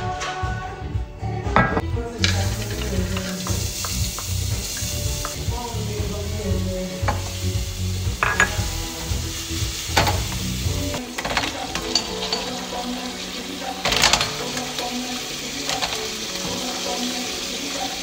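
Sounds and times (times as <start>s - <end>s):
garlic sizzling in oil: 2.2s - 11.0s, 11.9s - 18.0s
wooden spoon knocking on pan: 8.2s - 8.8s.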